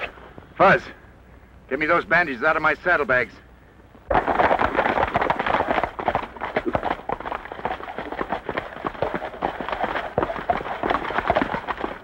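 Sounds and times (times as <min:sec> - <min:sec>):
horse hooves on dirt: 0:04.1 - 0:12.0.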